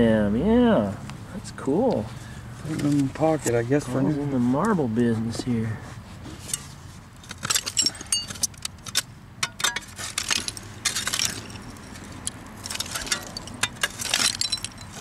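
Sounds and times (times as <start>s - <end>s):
glass and china clinking: 7.5s - 8.5s, 9.5s - 15.0s.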